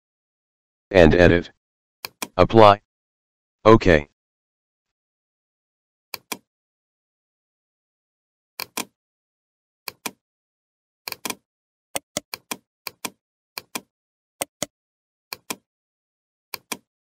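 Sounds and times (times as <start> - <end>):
computer mouse button clicking: 2.0 - 2.4, 6.2 - 6.5, 8.6 - 9.0, 9.9 - 10.2, 11.1 - 11.4, 12.0 - 14.7, 15.3 - 15.6, 16.6 - 16.9.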